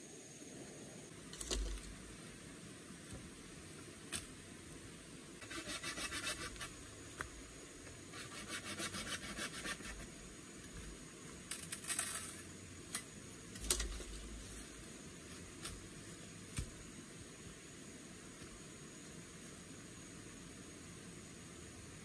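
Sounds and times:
machete sawing bamboo: 5.4s - 6.8s, 8.1s - 10.0s.

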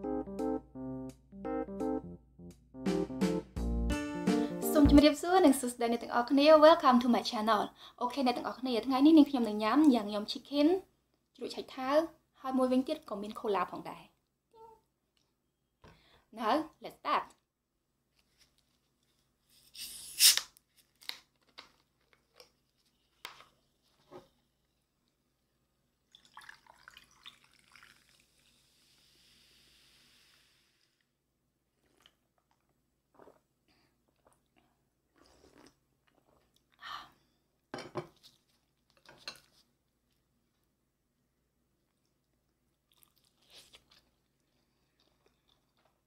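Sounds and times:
fizzing hiss of escaping gas: 28.4s - 31.0s.

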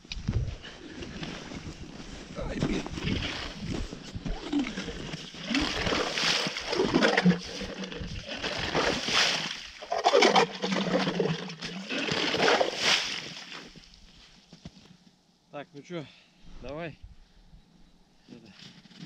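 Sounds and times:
ice auger crunching slush: 2.7s - 13.8s.

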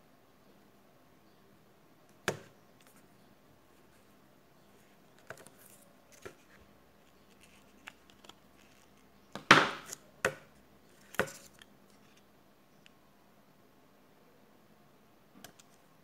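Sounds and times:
smartphone parts clicking and knocking: 2.2s - 2.5s, 9.3s - 10.5s.

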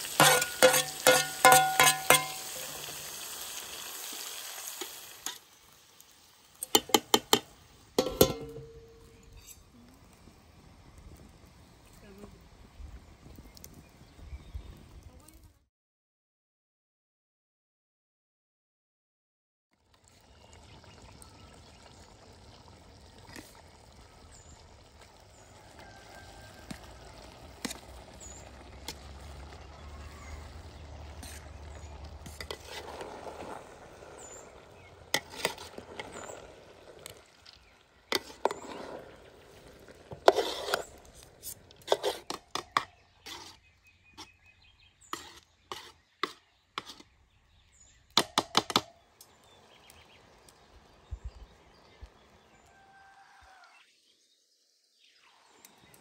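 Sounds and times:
spoon stirring rice in metal pot: 0.0s - 3.0s, 6.6s - 9.6s, 25.8s - 29.6s, 30.5s - 33.6s, 34.2s - 36.4s, 37.0s - 39.2s, 40.0s - 44.4s, 45.0s - 47.2s
metal clinking against pot: 0.1s - 2.7s, 6.6s - 9.5s.

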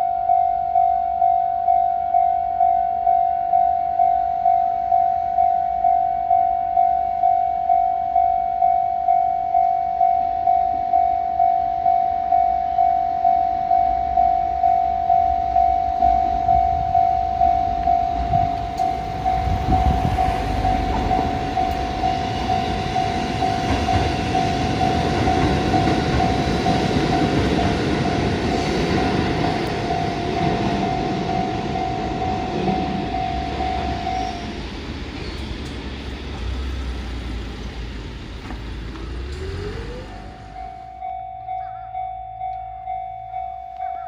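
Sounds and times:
level-crossing bell ringing: 0.0s - 34.6s, 40.2s - 44.0s
train rumbling: 10.3s - 44.0s.

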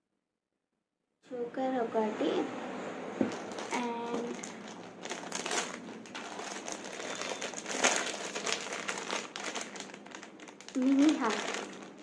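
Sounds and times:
plastic wrapping crinkling: 3.2s - 12.0s.

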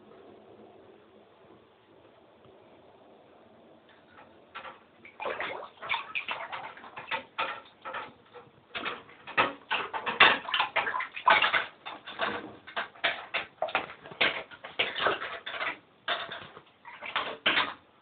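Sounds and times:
mink splashing in water: 4.0s - 17.8s.

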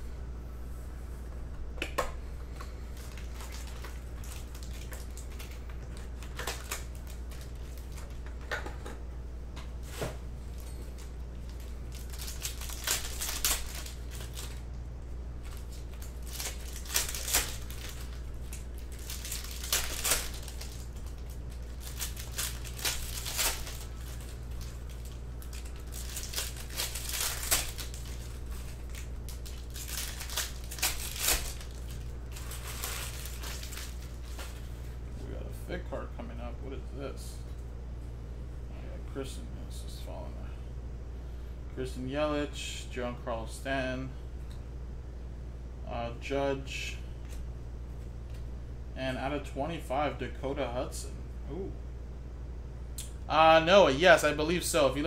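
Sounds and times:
steady low hum: 0.0s - 55.0s
foil packs crinkling and tearing: 2.9s - 8.2s, 10.5s - 14.8s, 15.4s - 34.8s
cards rustling: 9.9s - 14.7s, 15.4s - 34.9s.

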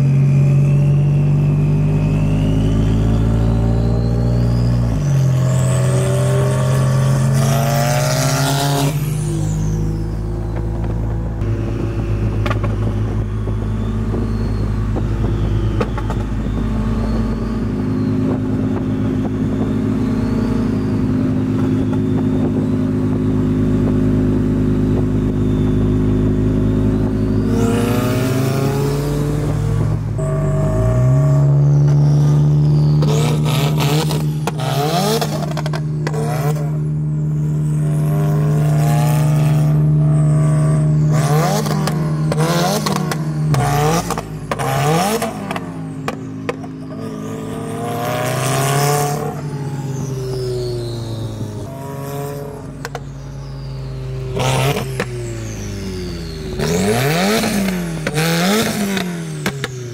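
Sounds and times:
car engine through exhaust: 0.0s - 59.9s
exhaust pops and bangs: 12.3s - 14.3s, 14.9s - 16.7s.

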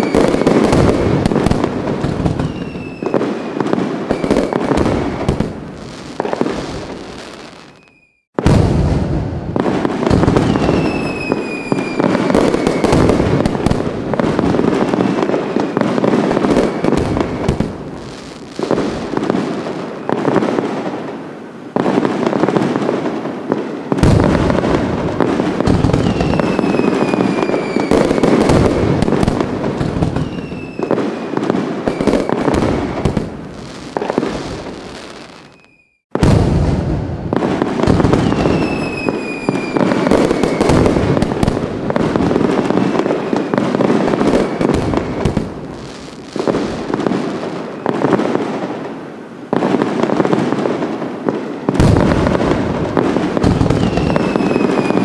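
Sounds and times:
falling firework whistles: 0.0s - 20.5s, 23.5s - 48.3s, 51.4s - 55.0s
fireworks crackling and banging: 0.0s - 55.0s
deep firework boom: 8.4s - 10.8s, 36.1s - 38.6s.

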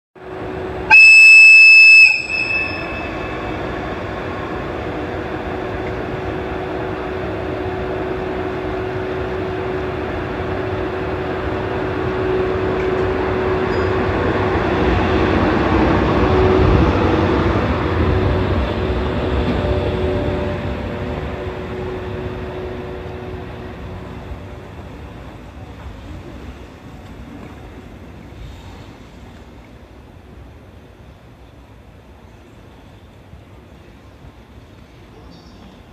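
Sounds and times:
locomotive humming: 0.2s - 35.9s
locomotive whistle blast: 0.9s - 3.4s.

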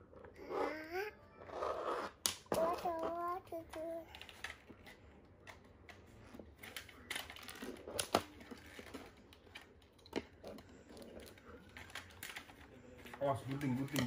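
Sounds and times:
plastic toy clicks and knocks: 2.2s - 6.0s, 6.6s - 14.0s.

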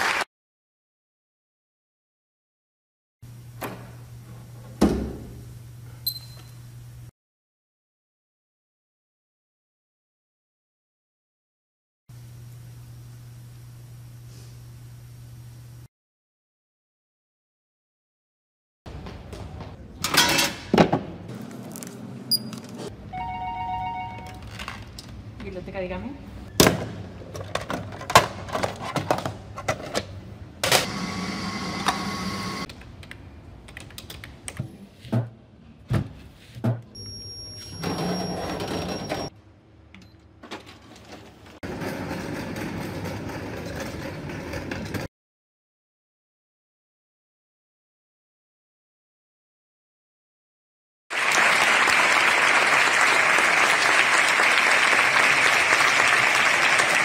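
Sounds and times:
audience applauding: 0.0s - 0.3s, 51.1s - 57.0s.

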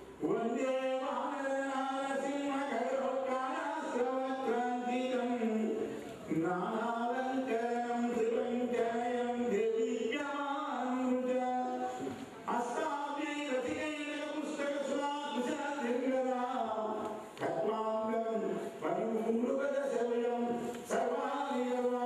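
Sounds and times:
man chanting melodically: 0.0s - 22.0s.

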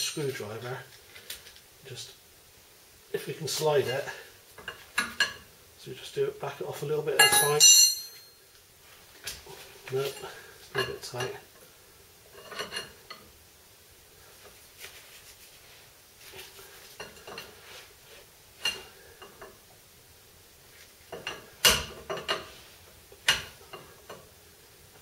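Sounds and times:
steel tools clinking on metal nut: 7.2s - 8.4s.

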